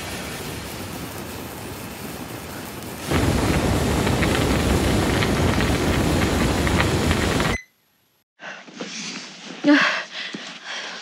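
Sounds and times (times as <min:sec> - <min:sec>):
flames burning with crackles: 0:00.0 - 0:07.6
steady hiss: 0:00.0 - 0:08.2.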